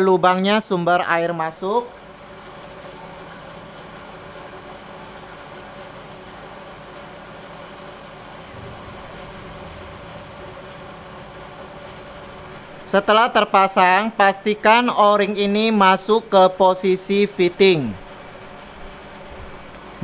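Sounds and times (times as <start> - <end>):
mechanical hum with tones: 0.0 - 20.0.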